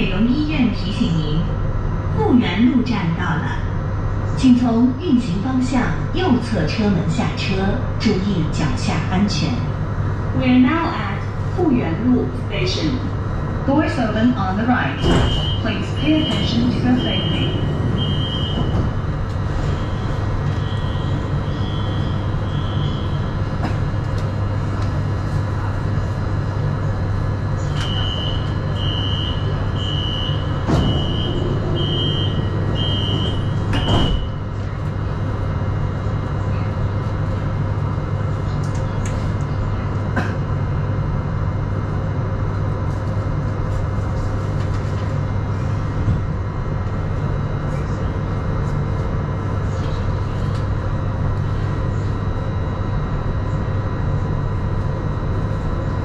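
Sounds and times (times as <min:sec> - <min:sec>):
train equipment low hum: 0:00.0 - 0:56.0
train doors shutting thud: 0:14.9 - 0:20.2, 0:27.7 - 0:34.5
door warning beeps: 0:15.0 - 0:19.0, 0:27.7 - 0:34.5.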